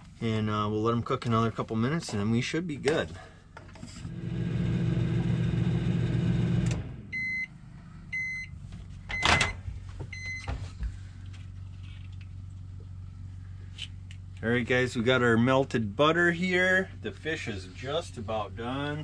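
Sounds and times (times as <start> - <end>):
microwave oven humming: 3.2 - 19.0
microwave beeps: 7.1 - 10.6.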